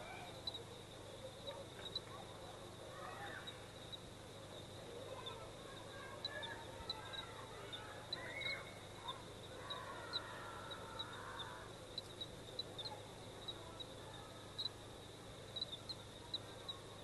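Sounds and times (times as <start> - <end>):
bird calls: 5.1 - 14.7.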